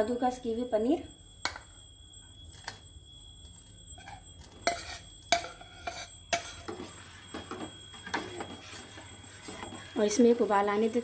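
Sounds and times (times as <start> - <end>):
spoon clinking on pot: 1.4 - 1.8, 4.0 - 9.9
ladle scraping steel pot: 4.0 - 7.0.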